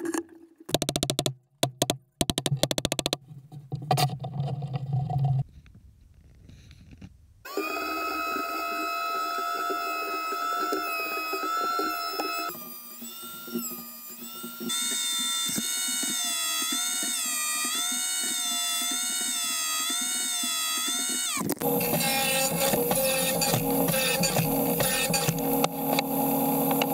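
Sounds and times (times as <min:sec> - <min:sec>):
thickness planer whining: 0:07.5 - 0:26.9.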